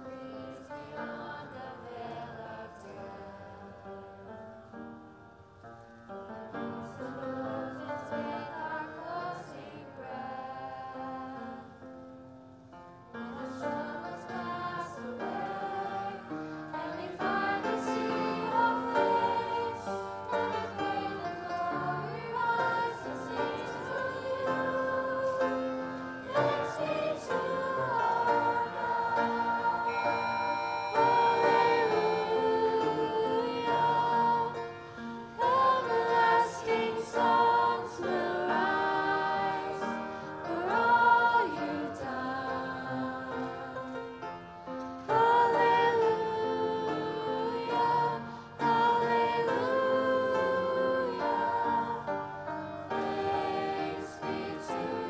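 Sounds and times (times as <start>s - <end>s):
mixed choir singing: 0.0s - 4.3s, 6.6s - 12.0s, 13.1s - 55.0s.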